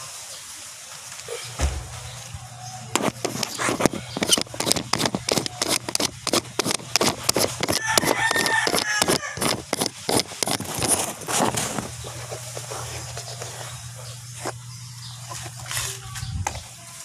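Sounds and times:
steady low hum: 1.1s - 16.8s
fingers handling phone microphone: 3.0s - 13.5s.

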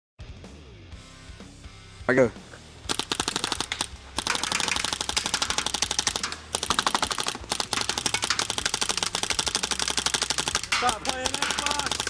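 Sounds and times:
paintball guns firing rapidly: 2.9s - 12.0s.

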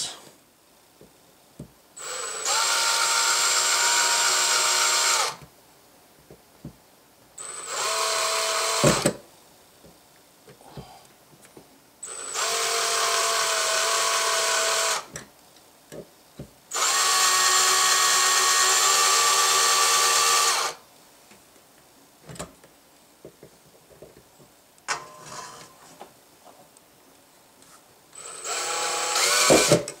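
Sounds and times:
electric drill grinding into metal: 7.4s - 9.2s, 12.1s - 15.1s, 28.2s - 30.0s.

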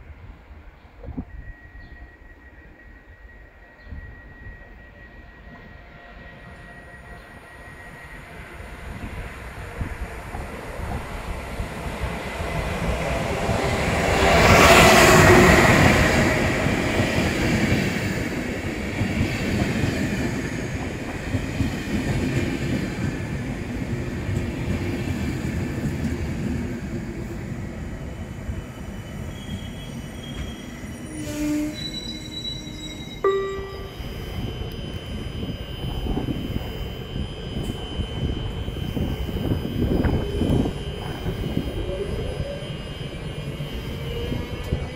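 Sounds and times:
electric locomotive passing: 0.1s - 44.9s
high whine: 33.2s - 44.9s.

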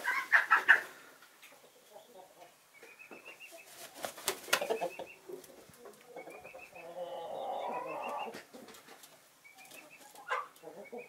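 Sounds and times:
wing feathers rustling: 3.5s - 5.8s.

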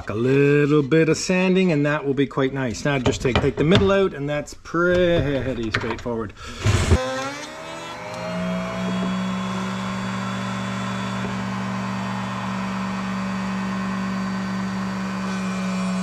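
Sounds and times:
electric router whining: 6.5s - 16.0s.

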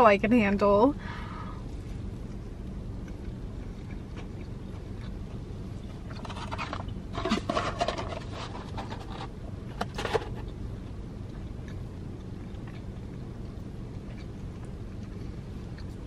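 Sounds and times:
low steady hum: 0.0s - 16.0s
cardboard and paper rustling: 6.2s - 10.4s.

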